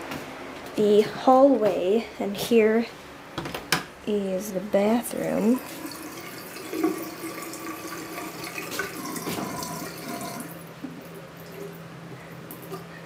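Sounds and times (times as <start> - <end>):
faucet running water into sink: 5.5 - 10.6.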